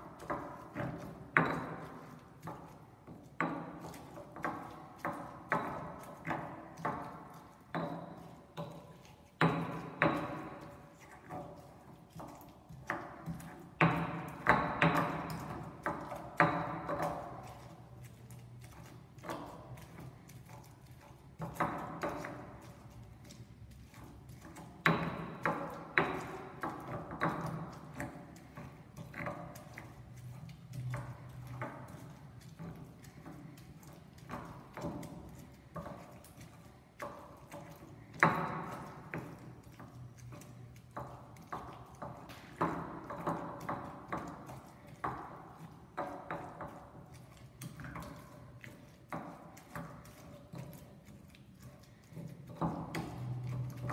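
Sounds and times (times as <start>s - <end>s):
stone pestle knocking and grinding: 0.0s - 53.9s
stone pestle knocking: 24.4s - 31.7s.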